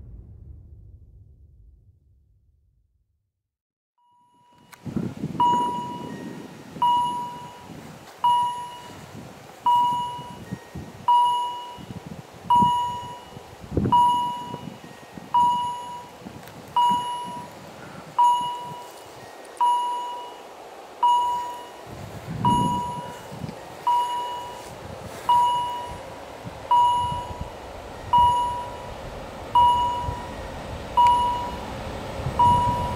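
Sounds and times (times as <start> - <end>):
low uneven rumble: 0.0 - 3.0, 20.5 - 32.9
level-crossing warning bell ringing: 5.4 - 9.0, 9.7 - 17.6, 18.2 - 29.0, 29.6 - 31.8, 32.4 - 32.9.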